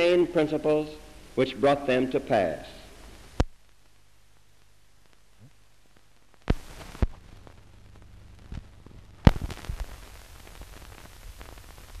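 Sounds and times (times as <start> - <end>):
film soundtrack hiss and crackle: 0.0 - 12.0
sharp pops: 6.4 - 7.2, 8.5 - 11.6.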